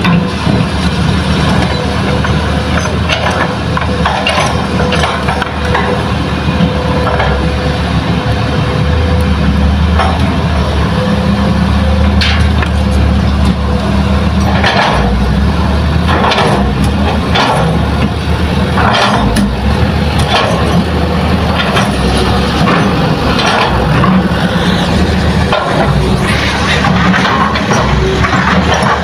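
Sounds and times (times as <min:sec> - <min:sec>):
diesel engines droning: 0:00.0 - 0:29.0.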